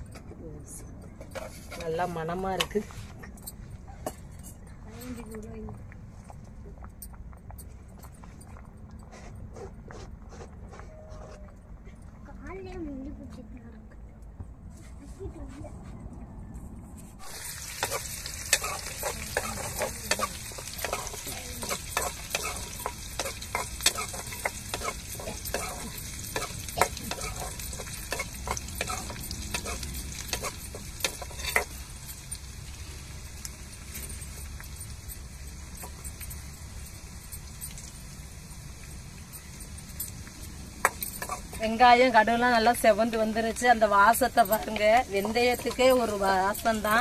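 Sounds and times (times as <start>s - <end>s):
food sizzling in oil: 17.2s - 47.0s
metal spoon clinking bowl: 17.7s - 32.6s, 33.5s - 47.0s.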